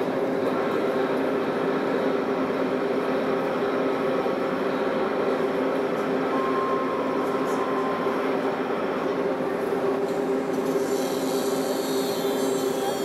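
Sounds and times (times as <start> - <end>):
model trains whirring: 0.0 - 13.0
high held tone: 6.3 - 8.5.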